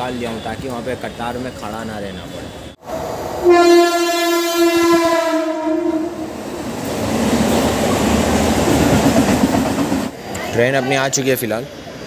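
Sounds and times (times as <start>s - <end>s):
train rumbling: 0.2s - 12.0s
electric train horn blast: 3.4s - 6.4s.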